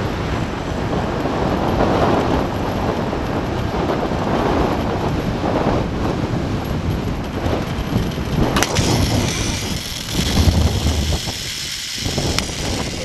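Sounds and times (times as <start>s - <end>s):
wind buffeting microphone: 0.0s - 13.0s
zipline trolley running on cable: 0.0s - 13.0s
sharp click: 8.6s - 13.0s.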